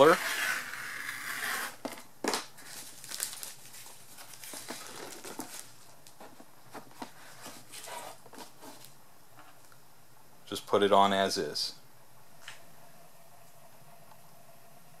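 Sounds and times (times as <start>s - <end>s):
cardboard packaging rustling: 2.6s - 9.0s.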